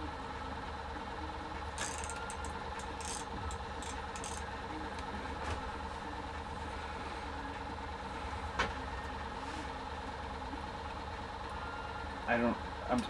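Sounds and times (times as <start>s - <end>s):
low mechanical hum: 0.0s - 13.0s
fishing reel rattling and scraping: 1.8s - 4.5s.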